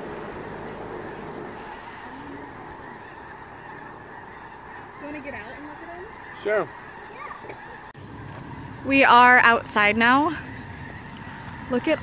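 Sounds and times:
low hum: 0.0s - 5.0s
flock of birds calling: 0.0s - 12.0s.

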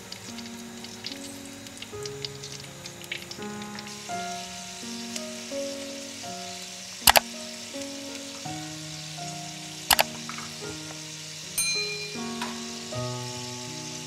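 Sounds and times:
background music with held notes: 0.0s - 14.0s
food sizzling in oil: 0.0s - 14.0s
sharp double click: 9.9s - 10.1s.

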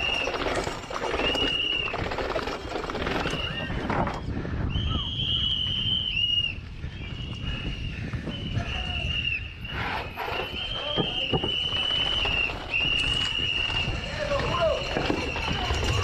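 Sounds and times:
tyres rolling: 0.0s - 4.2s, 9.6s - 16.0s
bike clattering over bumps: 0.0s - 4.3s, 9.8s - 16.0s
bike disc brakes squealing: 0.0s - 4.3s, 8.4s - 16.0s
wind rumble: 0.0s - 16.0s.

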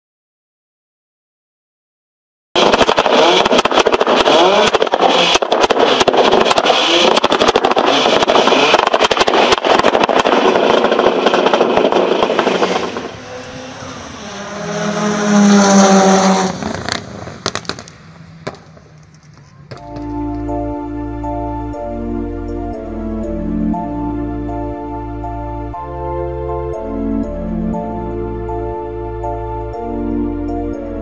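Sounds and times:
engine crackling and popping: 2.6s - 22.7s
race car passing: 11.6s - 19.8s.

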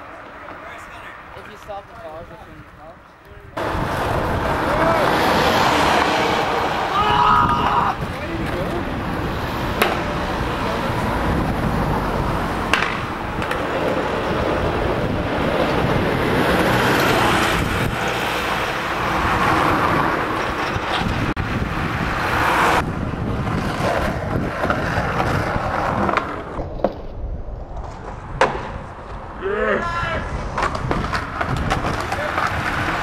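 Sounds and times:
car passing: 0.0s - 33.0s
skateboard wheels rumbling on asphalt: 0.0s - 33.0s
small truck passing: 3.6s - 7.1s, 8.0s - 26.7s, 30.3s - 33.0s
skateboard clacks: 7.9s - 11.6s, 12.6s - 14.6s, 23.4s - 27.1s, 27.8s - 29.2s, 30.5s - 33.0s.

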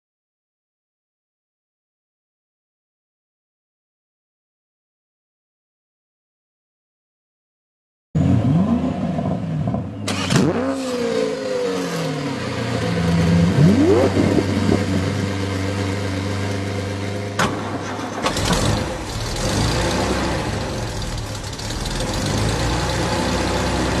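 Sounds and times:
car engine revving: 8.2s - 24.0s.

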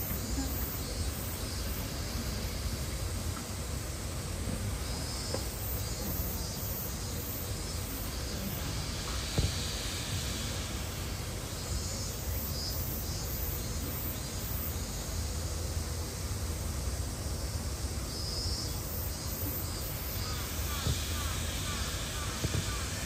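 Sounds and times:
outdoor background hiss: 0.0s - 23.0s.

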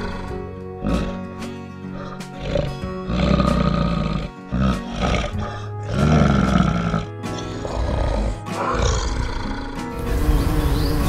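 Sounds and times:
background music with held tones: 0.0s - 11.0s
large animal roaring: 2.1s - 10.8s.

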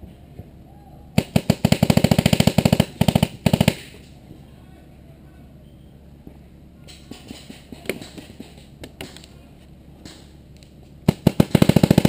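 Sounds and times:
paintball marker firing: 1.2s - 4.1s, 6.9s - 9.3s, 11.0s - 12.0s.

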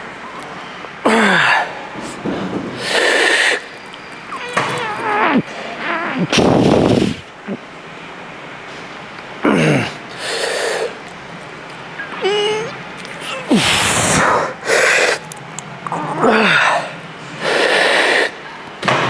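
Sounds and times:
man exhaling and grunting: 1.1s - 1.8s, 12.3s - 15.0s, 16.1s - 16.9s.

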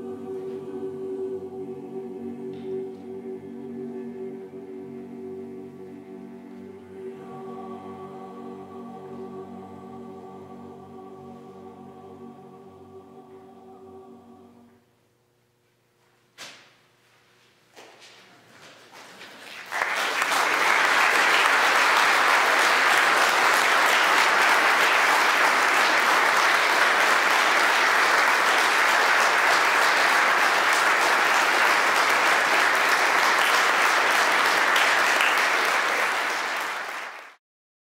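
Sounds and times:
audience applauding: 19.0s - 37.4s.

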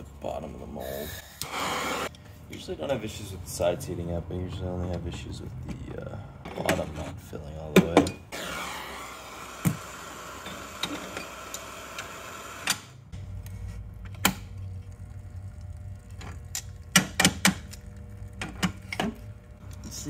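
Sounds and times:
gas torch flame hissing: 0.8s - 2.1s, 8.3s - 12.8s.

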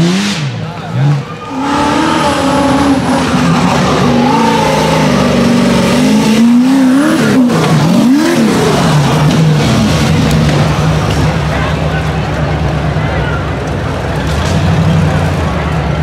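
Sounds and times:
buggy engine revving: 0.0s - 16.0s.

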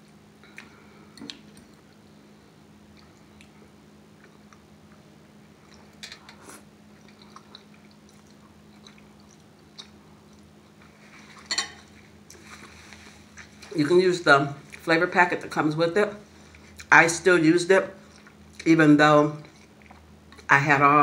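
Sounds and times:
soft chewing: 0.0s - 13.8s, 14.6s - 14.9s, 16.2s - 16.9s, 18.0s - 18.8s, 19.4s - 20.5s
faint steady hum: 0.0s - 21.0s.

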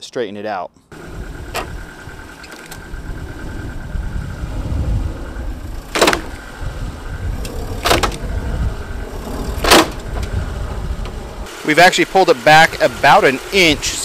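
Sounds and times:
car engine running: 0.9s - 14.0s
chain snapping taut bangs: 5.9s - 6.4s, 7.8s - 8.2s, 9.6s - 10.0s.

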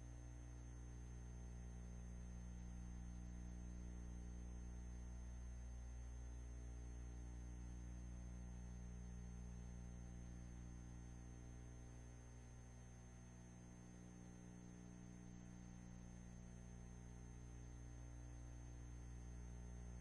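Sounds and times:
low electrical hum: 0.0s - 20.0s.

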